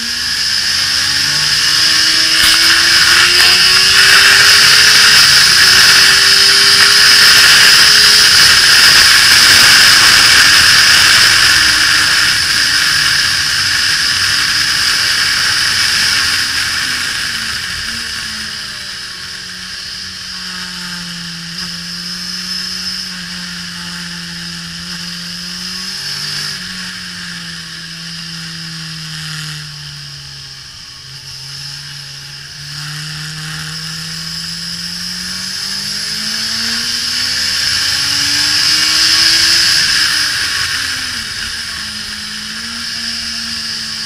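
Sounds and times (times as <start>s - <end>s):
motorcycle engine at speed: 0.0s - 44.0s.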